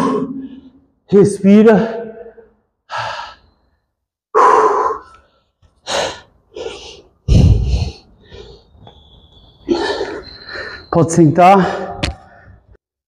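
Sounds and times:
man breathing hard: 0:02.7 - 0:11.0.

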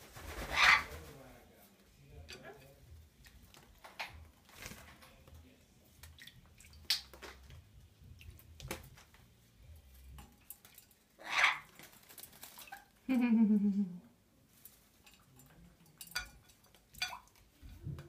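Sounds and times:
bird splashing in water: 0:11.7 - 0:12.9.

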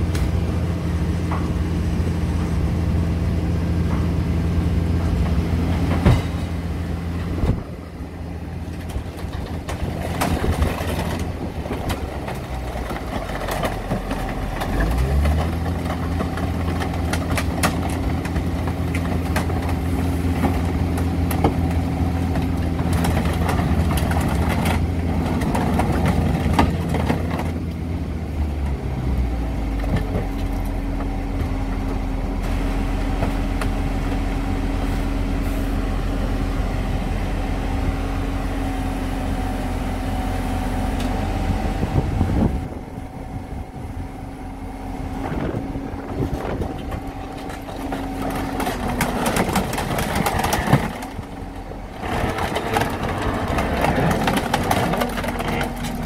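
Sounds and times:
metal cracking and knocking: 0:08.8 - 0:27.6, 0:46.8 - 0:56.0.

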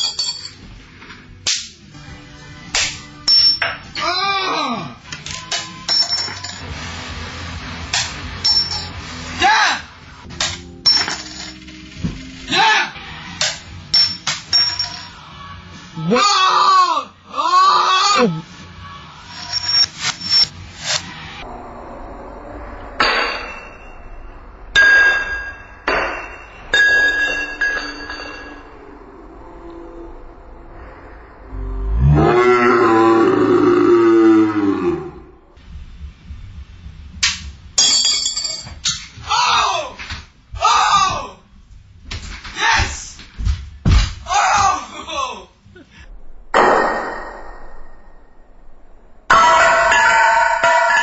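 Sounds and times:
coins clinking against glass: 0:00.0 - 0:00.6, 0:05.8 - 0:06.6, 0:08.4 - 0:08.9, 0:10.9 - 0:11.7, 0:13.9 - 0:15.2, 0:19.3 - 0:20.5, 0:37.8 - 0:38.7
glass ringing tone: 0:23.3 - 0:29.0.

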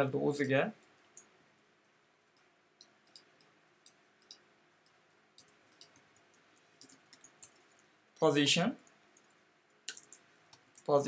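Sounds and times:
computer keyboard typing: 0:02.4 - 0:07.8, 0:08.8 - 0:11.0.

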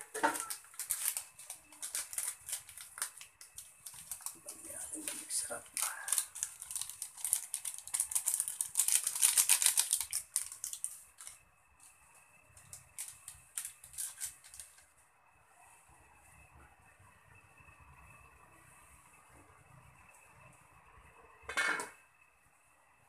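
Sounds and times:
faint steady high tone: 0:00.0 - 0:01.9
granules pouring crackling patter: 0:00.0 - 0:11.4, 0:12.6 - 0:14.8.

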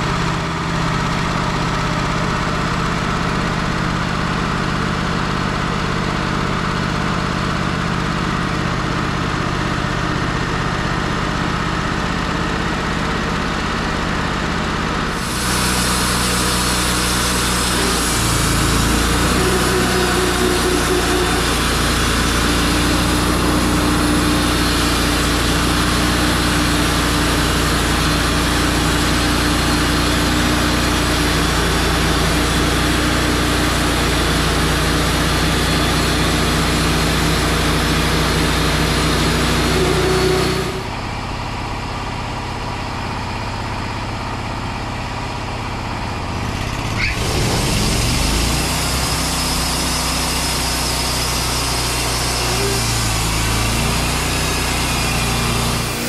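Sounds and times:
sawmill engine running: 0:00.0 - 0:56.0
band blade sawing log: 0:15.1 - 0:40.9, 0:46.8 - 0:56.0.

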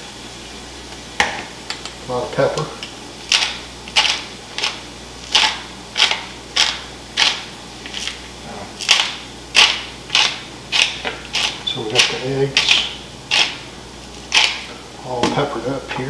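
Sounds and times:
pepper grinder grinding: 0:03.3 - 0:08.2, 0:08.8 - 0:14.7.

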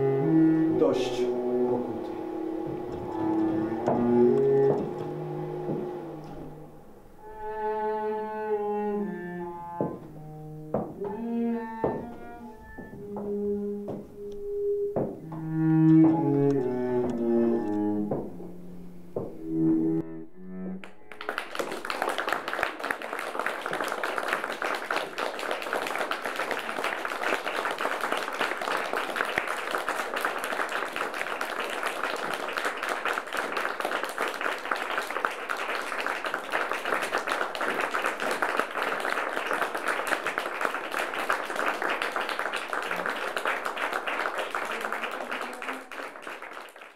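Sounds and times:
low bowed-string notes: 0:00.0 - 0:25.0
audience applause: 0:20.8 - 0:46.9.

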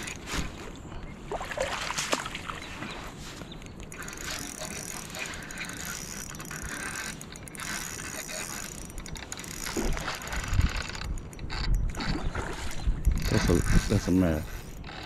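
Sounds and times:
fishing reel clicking: 0:03.7 - 0:15.0.

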